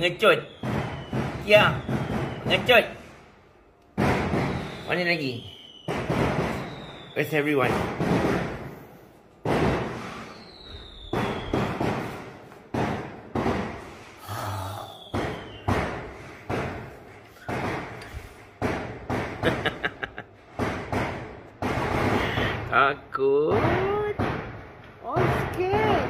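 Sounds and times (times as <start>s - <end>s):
loud gunshot-like bangs: 0.0s - 3.2s, 4.0s - 14.2s, 15.0s - 19.9s, 20.5s - 22.7s, 23.5s - 26.0s
faint falling whistle: 4.5s - 7.4s, 10.2s - 11.8s.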